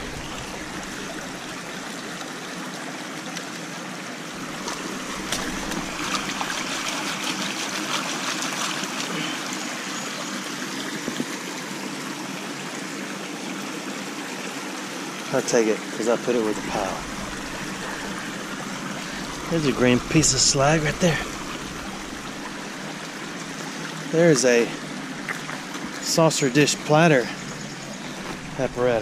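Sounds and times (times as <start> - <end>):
creek water over rocks: 0.0 - 29.0.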